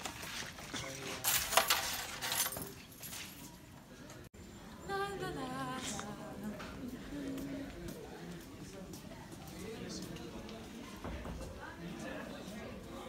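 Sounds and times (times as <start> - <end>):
backpack rustling and clinking: 0.0 - 3.7.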